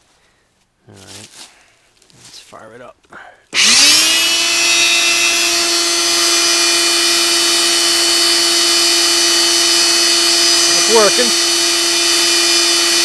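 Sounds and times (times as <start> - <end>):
shop vac high whine: 3.6 - 13.0.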